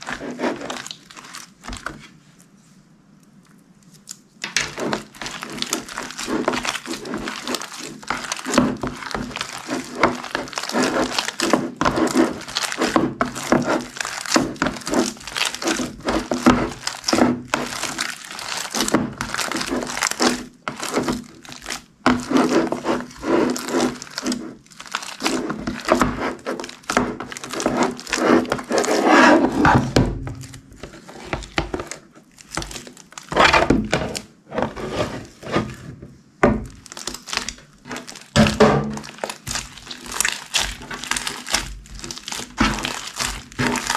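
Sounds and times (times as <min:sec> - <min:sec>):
slime squishing with sticky pops: 0:00.0 - 0:02.1, 0:03.3 - 0:34.3, 0:36.4 - 0:43.9.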